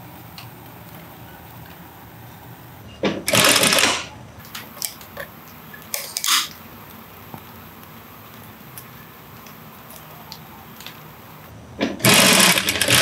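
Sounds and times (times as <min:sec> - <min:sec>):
steady low hum: 0:00.0 - 0:13.0
sewing machine stitching: 0:03.0 - 0:04.1, 0:11.8 - 0:13.0.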